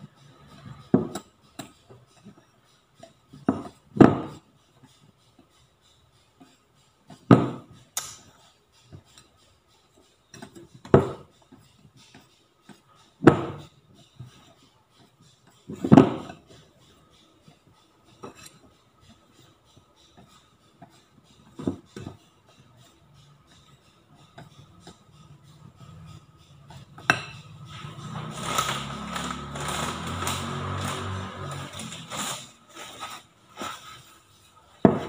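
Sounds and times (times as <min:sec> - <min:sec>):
whisk stirring batter: 0:00.0 - 0:35.0
whisk clinking on ceramic bowl: 0:27.0 - 0:27.6.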